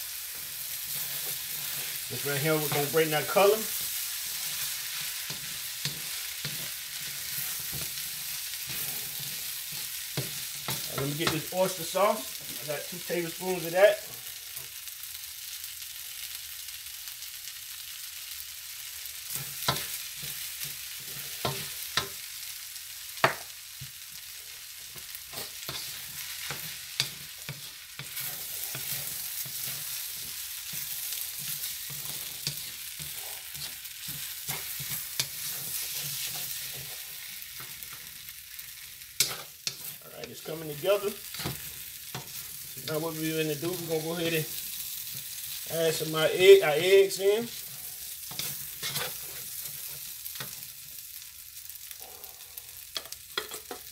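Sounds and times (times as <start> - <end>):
rice sizzling in a wok: 0.0 - 53.9
spatula knocking and scraping pan: 0.4 - 11.8, 19.3 - 22.2, 23.2 - 24.0, 24.9 - 38.0, 39.2 - 40.4, 41.2 - 44.0, 47.6 - 50.6.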